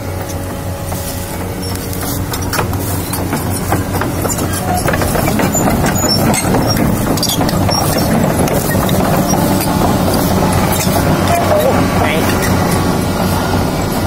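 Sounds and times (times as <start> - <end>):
diesel engine humming: 0.0 - 14.0
metal track links clanking: 0.0 - 14.0.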